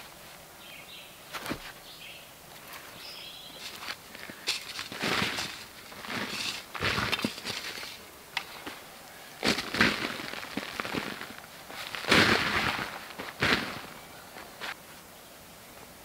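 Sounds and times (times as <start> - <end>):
sharp crunching and cracking: 3.6 - 8.8, 9.4 - 14.0.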